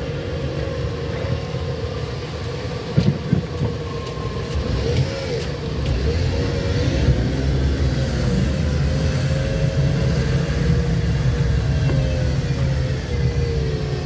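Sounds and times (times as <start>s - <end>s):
car engine and tyre rumble: 0.0s - 14.0s.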